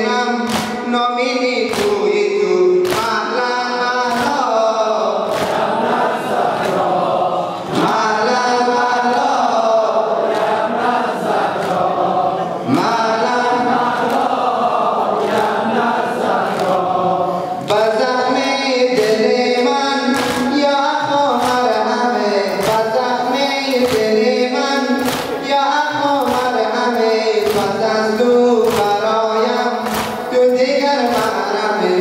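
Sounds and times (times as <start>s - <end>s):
men singing a lament in unison: 0.0s - 32.0s
hands slapping chests: 0.4s - 0.9s, 1.7s - 2.0s, 2.8s - 3.2s, 5.2s - 6.9s, 8.8s - 9.4s, 10.2s - 12.0s, 13.6s - 17.0s, 17.6s - 21.8s, 22.5s - 23.1s, 23.7s - 24.1s, 24.8s - 26.6s, 27.4s - 27.8s, 28.6s - 30.3s, 31.0s - 31.4s.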